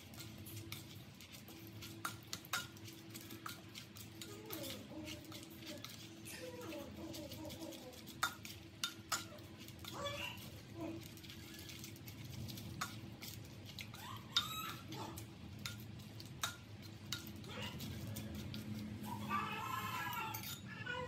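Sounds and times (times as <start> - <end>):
spoon scraping in pot: 0.0 - 20.7
spoon clicking against pot: 8.1 - 9.4.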